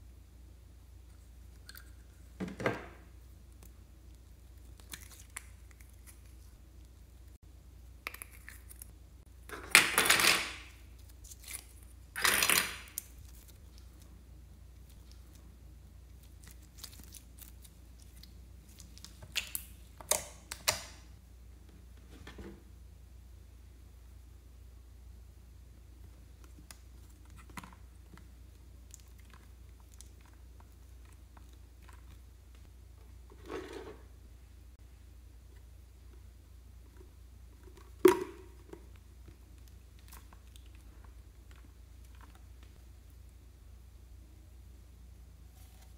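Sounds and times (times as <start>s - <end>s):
sticky slime squelching: 3.2s - 7.1s, 10.9s - 21.0s.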